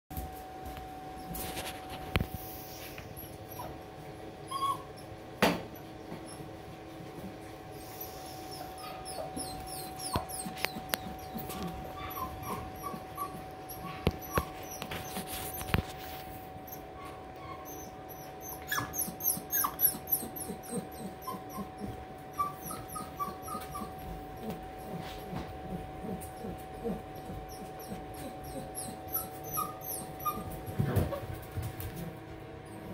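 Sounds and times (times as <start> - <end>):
puppy paws clicking on tile: 0.1 - 3.7, 8.6 - 16.8, 18.6 - 32.4
puppies whimpering and yipping: 3.1 - 3.8, 4.4 - 6.6, 7.7 - 31.4.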